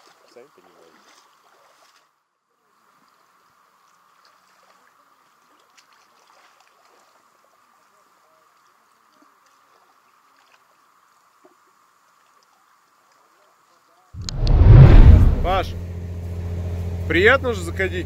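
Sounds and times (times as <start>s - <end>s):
small splashes and trickles: 0.0s - 14.1s.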